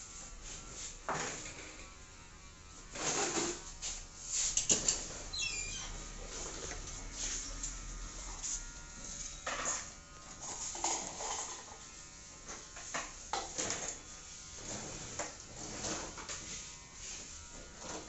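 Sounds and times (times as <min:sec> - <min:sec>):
electric hair clippers buzzing: 0:00.0 - 0:18.0
salon work sounds: 0:00.0 - 0:18.0.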